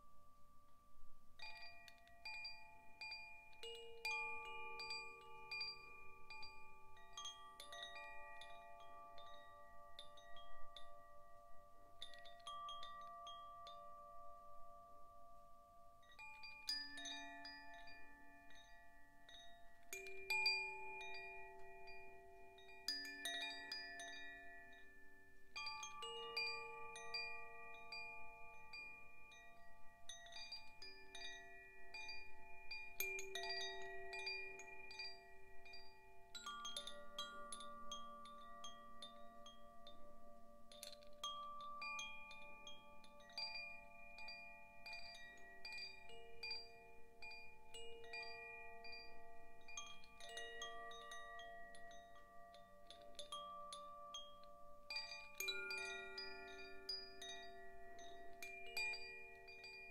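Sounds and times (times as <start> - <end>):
wind chime ringing: 1.4 - 59.9.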